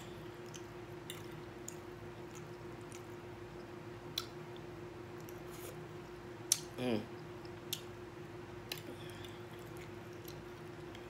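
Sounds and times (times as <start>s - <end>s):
person chewing food: 0.0s - 8.0s, 8.6s - 11.0s
steady low hum: 0.0s - 11.0s.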